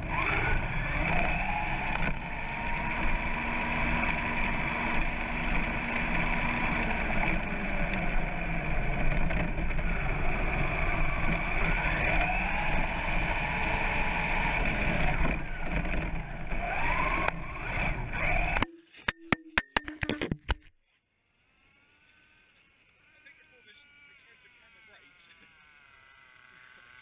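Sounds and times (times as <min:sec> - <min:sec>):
tyres rumbling on rough tarmac: 0:00.0 - 0:18.6
electric motor whine: 0:00.0 - 0:18.7, 0:21.2 - 0:27.0.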